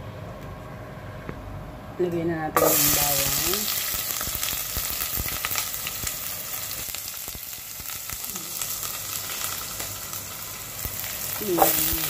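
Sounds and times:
garlic sizzling in oil: 2.6s - 12.0s.

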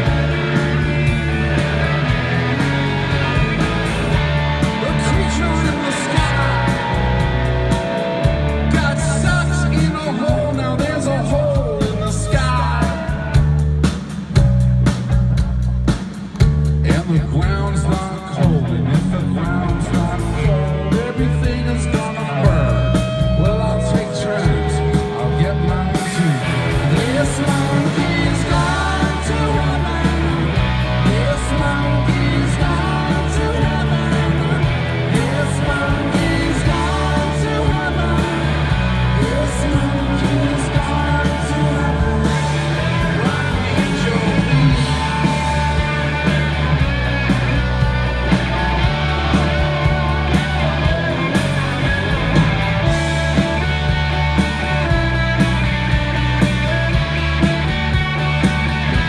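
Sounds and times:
live rock band playing: 0.0s - 59.0s
person singing: 4.6s - 7.3s, 8.6s - 13.6s, 16.9s - 46.7s.

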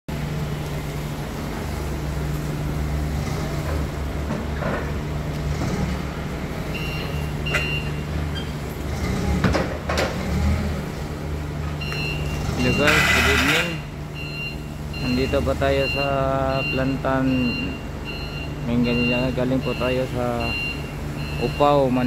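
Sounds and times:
forklift engine running: 0.1s - 22.0s
knocks and clanks of load: 3.6s - 5.0s, 9.2s - 10.6s
short high beeps: 11.8s - 21.8s.

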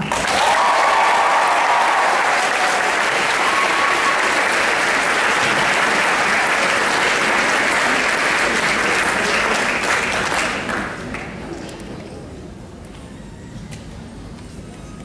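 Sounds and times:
crowd applauding: 0.0s - 11.4s.

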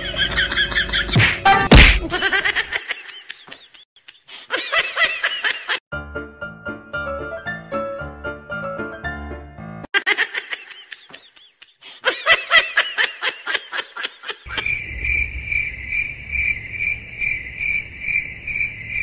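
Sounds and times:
cricket chirping: 14.5s - 19.0s
low hum: 14.5s - 19.0s.

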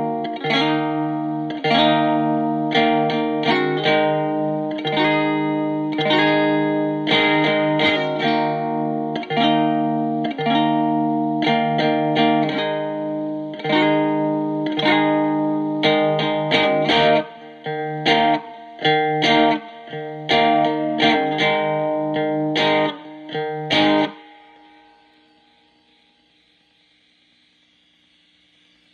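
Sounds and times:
distorted electric guitar chords: 0.0s - 28.9s.

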